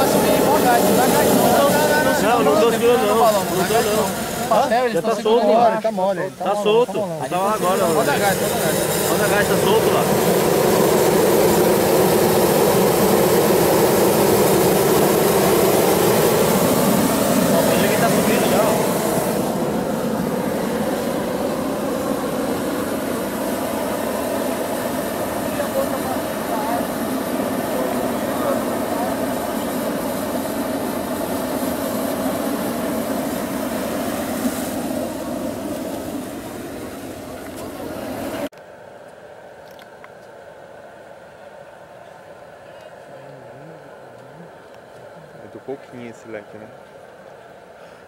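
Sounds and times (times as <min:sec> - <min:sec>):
gas burner flame rushing: 0:00.0 - 0:05.5, 0:06.2 - 0:38.5.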